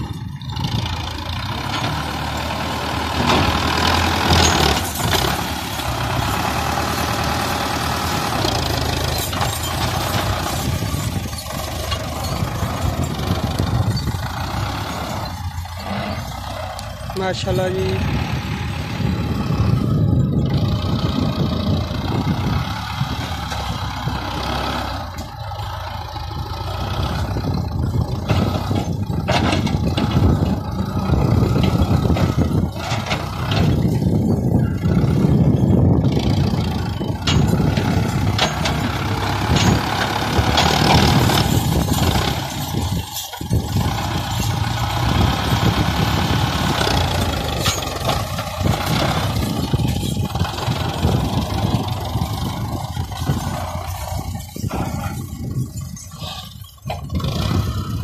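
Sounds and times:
diesel tractor engine under load: 0.0 - 58.0.

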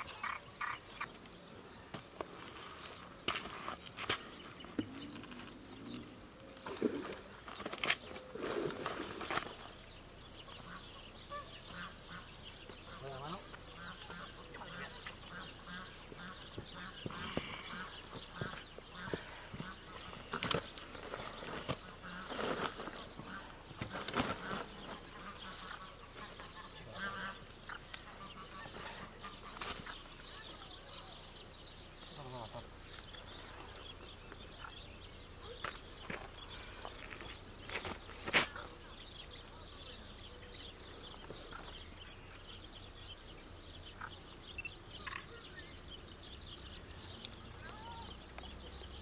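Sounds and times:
songbirds chirping: 0.0 - 49.0
waterfowl calling: 10.4 - 20.2, 23.2 - 30.7.

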